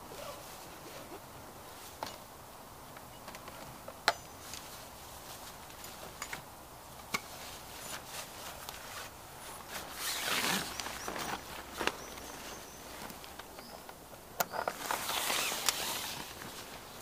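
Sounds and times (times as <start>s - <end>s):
fabric rustling: 7.3s - 13.5s, 14.7s - 17.0s.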